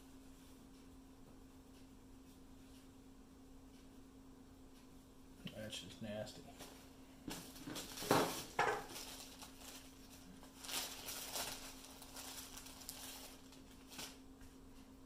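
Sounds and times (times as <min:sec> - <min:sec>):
plastic bag crinkling: 0:07.3 - 0:14.2.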